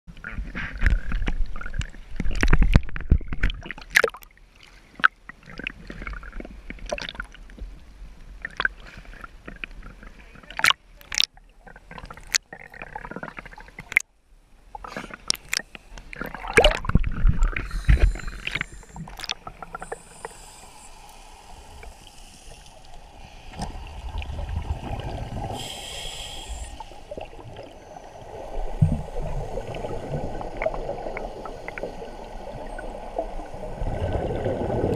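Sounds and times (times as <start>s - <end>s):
muffled underwater rushing: 16.1s - 34.9s.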